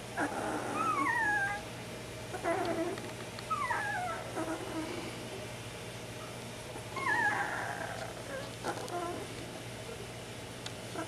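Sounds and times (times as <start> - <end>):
puppies squeaking and whimpering: 0.2 - 1.6, 2.4 - 4.9, 6.9 - 9.3.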